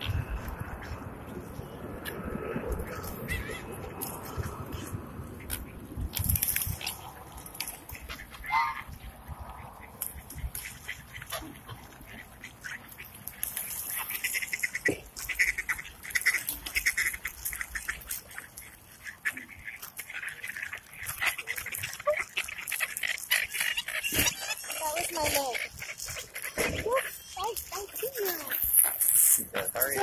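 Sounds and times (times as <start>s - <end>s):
ducks and geese quacking and honking: 7.9s - 28.9s.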